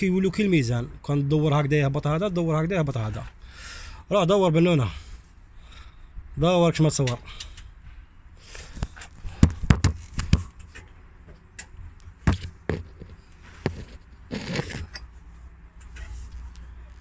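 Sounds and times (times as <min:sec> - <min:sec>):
short metal scrape: 0:12.8 - 0:15.1.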